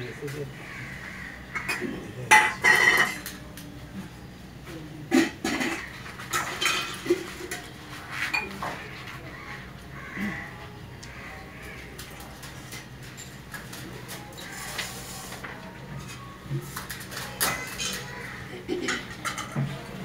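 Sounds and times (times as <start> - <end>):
brass vessels clinking: 1.5 - 3.3.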